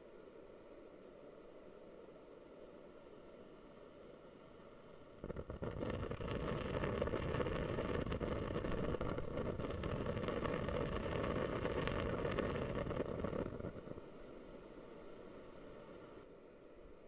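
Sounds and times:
faint hiss: 0.0s - 17.0s
humidifier bubbling: 5.0s - 16.3s.

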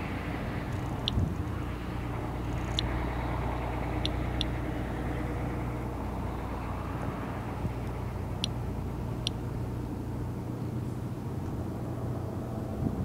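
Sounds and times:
steady low rumble: 0.0s - 13.0s
geiger counter ticks: 0.6s - 1.2s, 2.1s - 5.9s, 7.0s - 9.4s.

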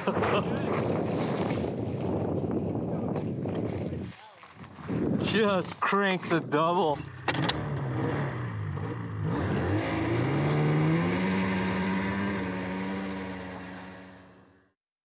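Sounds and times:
snowmobile engine revving: 7.3s - 14.7s.

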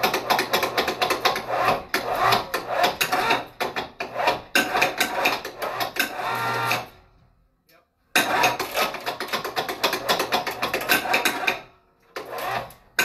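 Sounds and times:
rig rattling and creaking: 0.0s - 6.9s
electric hoist motor hum: 5.7s - 6.9s.

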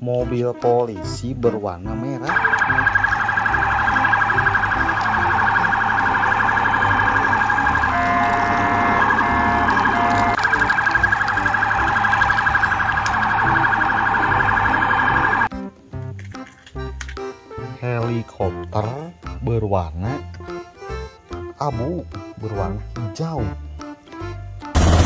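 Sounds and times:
toy siren warbling: 2.3s - 15.5s.

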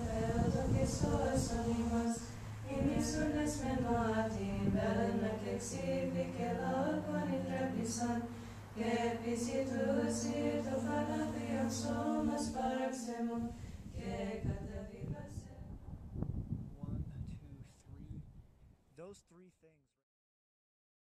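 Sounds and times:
unaccompanied choir chanting: 0.0s - 16.0s
steady low vocal drone: 0.0s - 16.2s.

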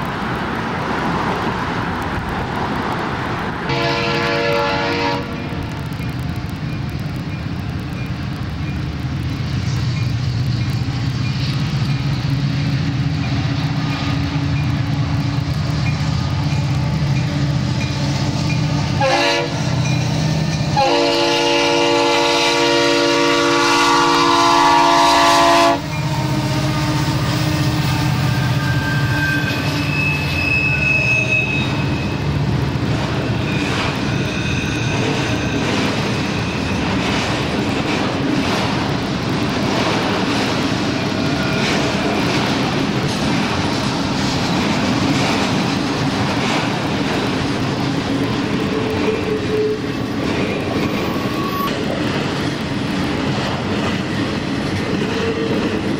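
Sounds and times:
diesel locomotives rumbling: 0.0s - 55.9s
train horn: 3.7s - 5.6s, 18.6s - 19.9s, 20.7s - 32.2s, 49.1s - 50.0s.

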